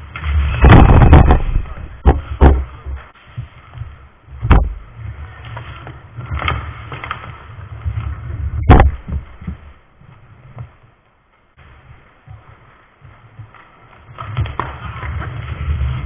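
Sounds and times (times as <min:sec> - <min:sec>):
skates and sticks clattering: 0:00.0 - 0:16.0
loud knocks: 0:00.6 - 0:03.1, 0:03.8 - 0:04.9, 0:08.6 - 0:09.6.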